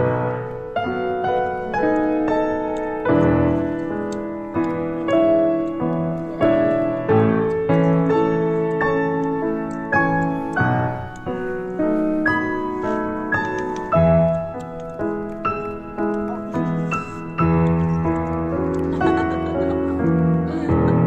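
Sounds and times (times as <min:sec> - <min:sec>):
slow piano melody: 0:00.0 - 0:21.0.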